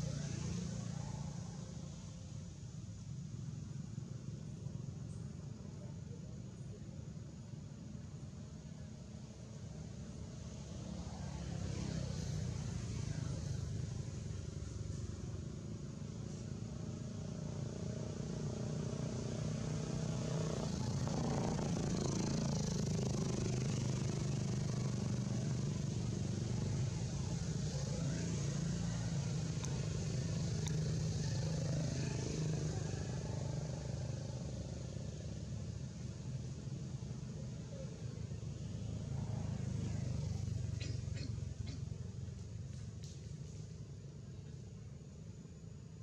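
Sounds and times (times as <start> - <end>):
low engine hum: 0.0 - 46.0
faint voices: 19.5 - 45.0.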